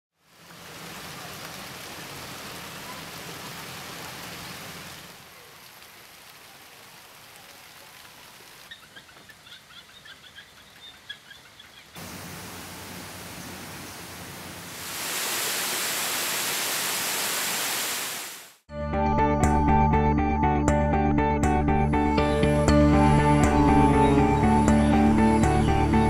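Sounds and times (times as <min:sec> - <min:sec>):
rain falling on leaves: 0:00.1 - 0:18.6
bird chirping rapidly: 0:08.7 - 0:12.0.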